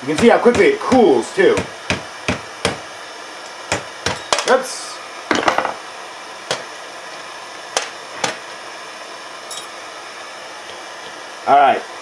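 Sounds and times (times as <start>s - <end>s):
metal knocks on anvil: 5.3s - 5.8s.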